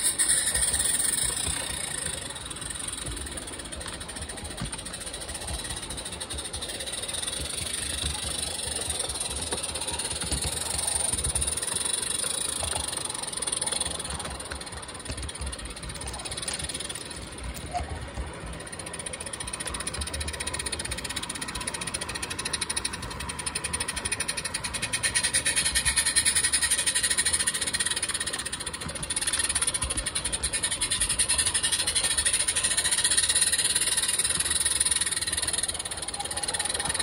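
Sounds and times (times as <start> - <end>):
model steam locomotive running: 0.0 - 37.0.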